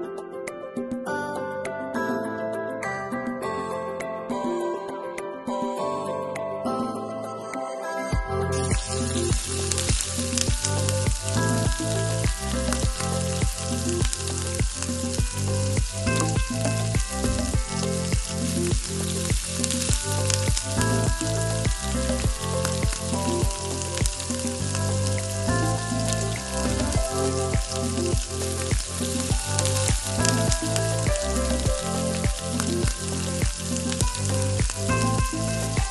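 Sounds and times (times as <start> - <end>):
background music with steady beat: 0.0 - 35.9
onions sizzling in hot oil: 18.0 - 21.6.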